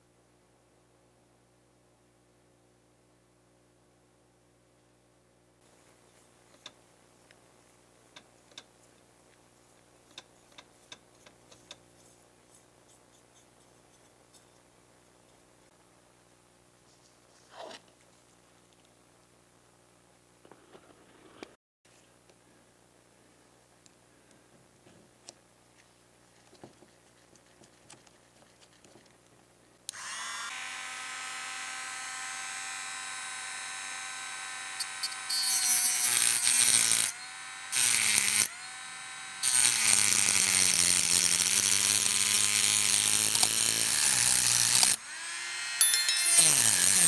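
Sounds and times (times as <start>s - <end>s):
rotary tool motor whine: 29.9s - 47.0s
disc grinding metal: 31.0s - 40.4s, 44.0s - 47.0s.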